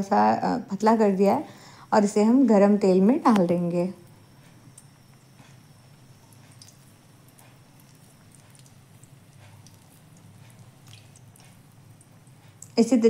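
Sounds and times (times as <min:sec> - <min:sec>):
low steady hum: 0:00.0 - 0:13.0
batter sizzling in oil: 0:02.9 - 0:13.0.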